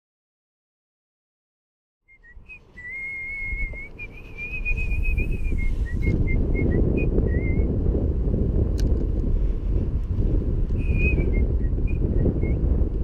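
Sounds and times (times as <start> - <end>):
person whistling a tune: 2.1 - 7.7, 10.8 - 12.6
wind rumbling on microphone: 2.2 - 13.0.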